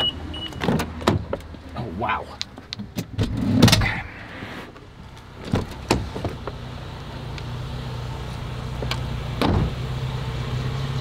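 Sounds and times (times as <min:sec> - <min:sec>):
car engine idling: 0:03.8 - 0:11.0.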